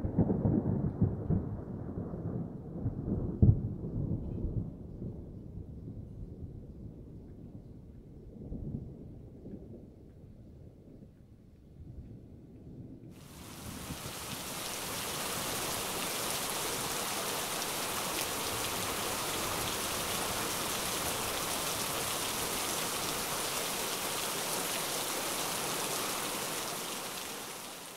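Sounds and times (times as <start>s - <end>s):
steady rain: 13.2s - 27.9s.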